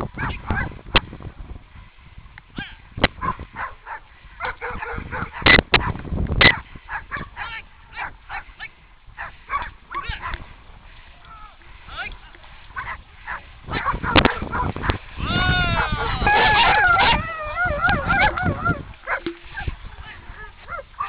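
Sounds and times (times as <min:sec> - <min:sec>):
dogs yelping and whining: 0:15.6 - 0:19.2.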